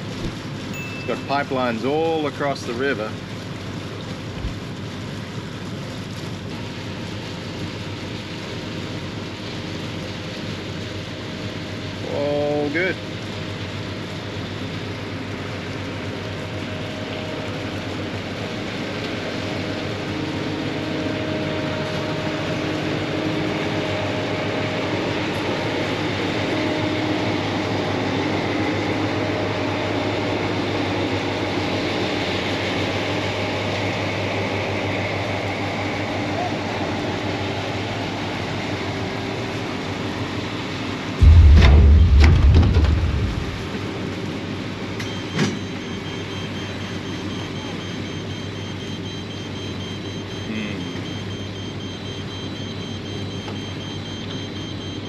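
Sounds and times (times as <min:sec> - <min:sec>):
boat motors running: 0:00.0 - 0:31.9
diesel dredge machinery and pumps: 0:00.0 - 0:55.0.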